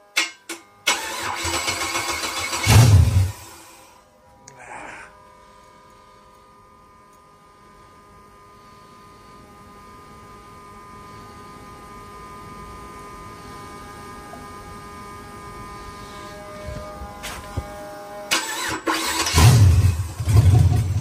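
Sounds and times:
electrical hum: 0.0s - 21.0s.

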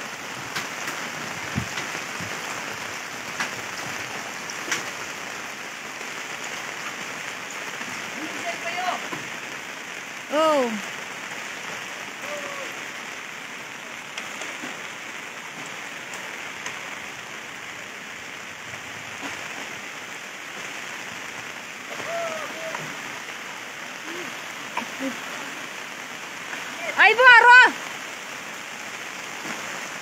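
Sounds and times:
steady rain: 0.0s - 30.0s.

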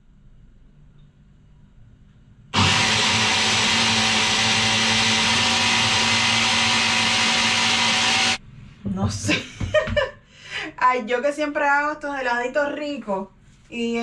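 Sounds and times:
electric blender whirring: 2.6s - 8.4s.

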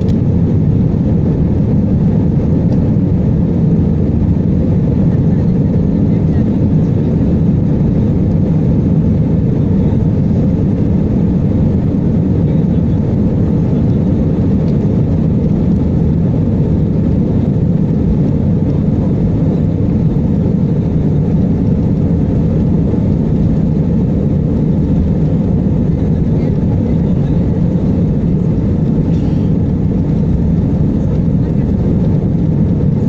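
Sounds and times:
jet engine rumble in cabin: 0.0s - 33.0s.

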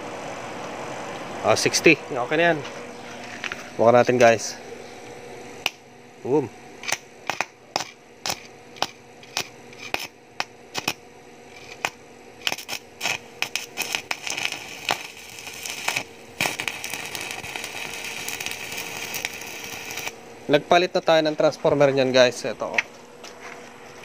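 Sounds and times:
electrode striking snaps: 5.6s - 5.8s, 6.8s - 11.0s
welding arc crackling: 5.6s - 22.8s.

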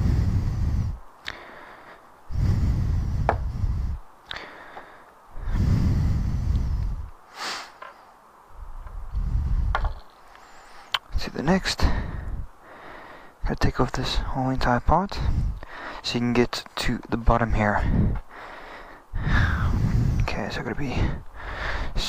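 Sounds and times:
air puffs buffeting microphone: 0.0s - 1.7s, 2.3s - 4.7s, 5.3s - 7.8s, 8.6s - 12.6s, 13.4s - 16.2s, 17.2s - 18.4s, 19.1s - 22.0s.

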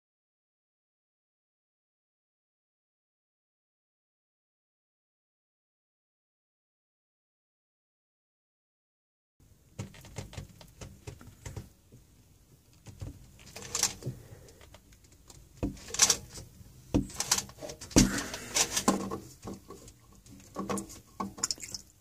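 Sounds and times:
scraping rasps: 15.6s - 21.8s.

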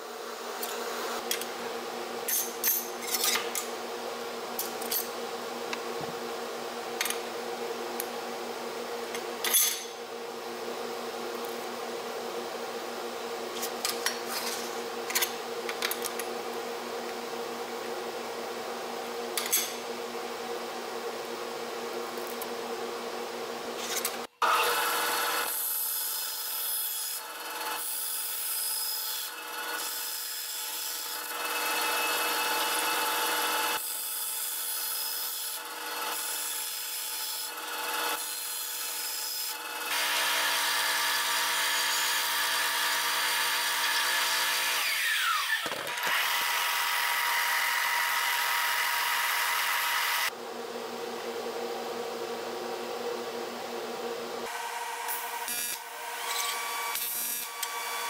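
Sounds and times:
band saw cutting metal: 23.8s - 50.3s, 54.4s - 58.0s.

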